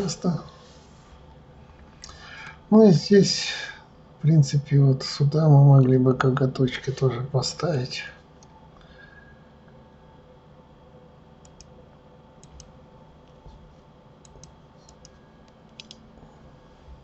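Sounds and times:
faint steady hum: 0.0 - 17.0
computer mouse clicks: 11.4 - 11.7, 12.4 - 12.7, 14.2 - 16.0.

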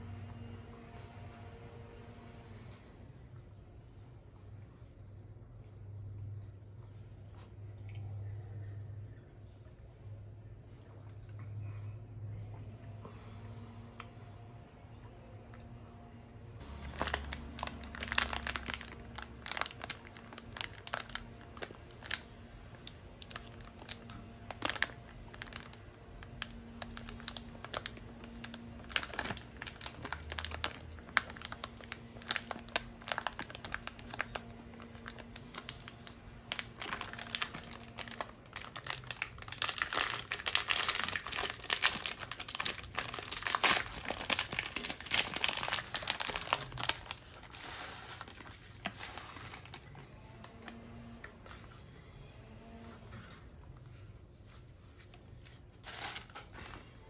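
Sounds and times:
plastic wrapper crinkling: 16.6 - 50.1, 55.0 - 57.0
wrapper tearing open: 16.8 - 49.9.

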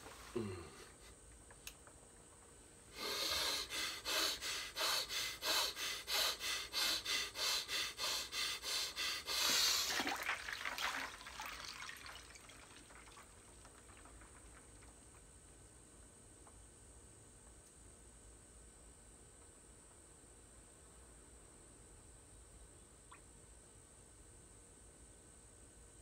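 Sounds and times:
fast forceful breathing: 2.9 - 10.0
head plunging into water: 9.8 - 14.4
water sloshing and dripping: 9.8 - 15.2.

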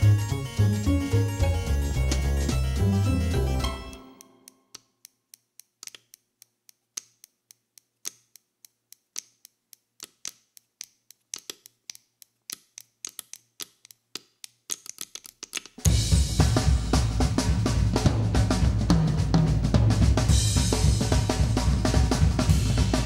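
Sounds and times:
sharp irregular clicks: 4.2 - 15.9.

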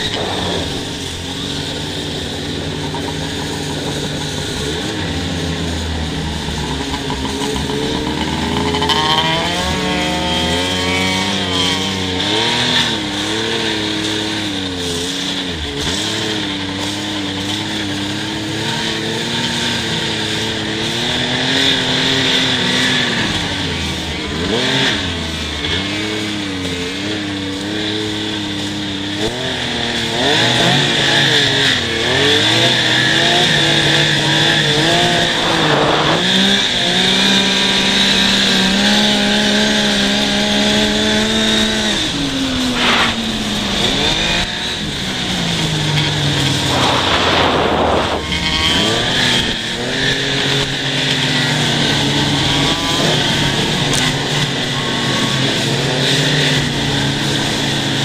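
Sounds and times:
steady high whine: 0.0 - 8.9, 33.2 - 37.1, 41.2 - 55.5
snowmobile engine revving: 0.0 - 58.0
short rushes of noise: 34.7 - 36.4, 42.6 - 44.6, 45.4 - 49.8.

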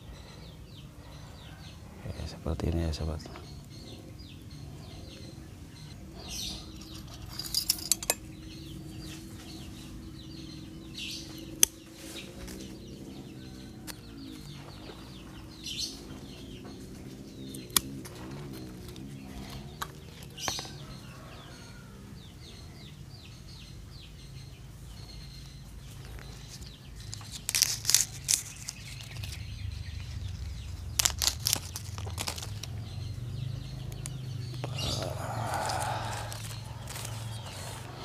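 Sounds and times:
birds chirping faintly: 0.0 - 38.0
branches snapping clicks: 27.0 - 29.4, 30.6 - 32.8.

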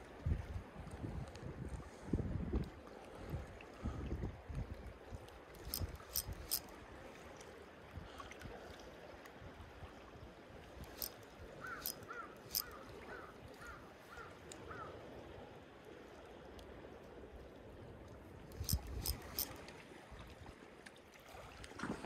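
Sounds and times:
sharp clicks: 5.6 - 6.6, 10.9 - 11.2, 11.8 - 12.7, 18.5 - 19.5.

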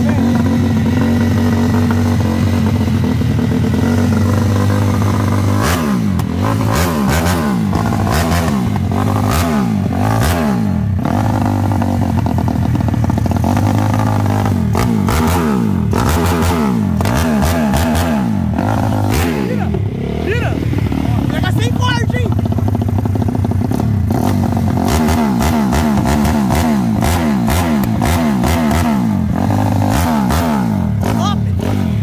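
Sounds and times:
motorcycle engine idling: 0.0 - 32.0
motorcycle engine revving: 0.0 - 32.0.

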